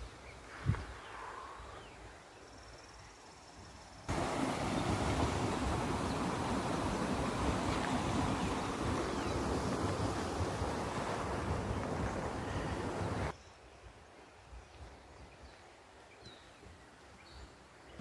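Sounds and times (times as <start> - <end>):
wind buffeting microphone: 4.1 - 13.3.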